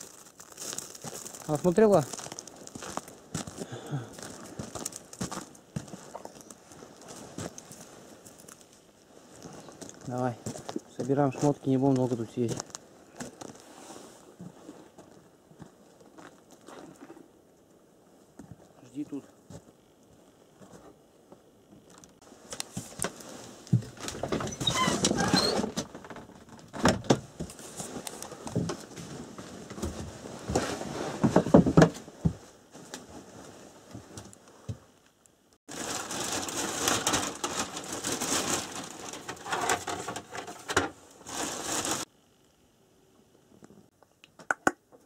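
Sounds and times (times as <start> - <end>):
footsteps crunching in snow: 0.0 - 17.2.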